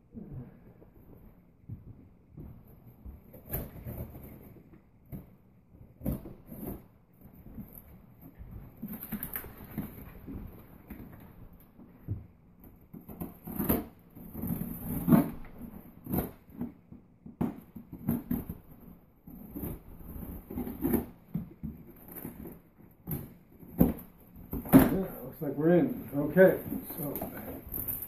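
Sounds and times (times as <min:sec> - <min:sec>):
cardboard rustling: 0:12.8 - 0:28.0.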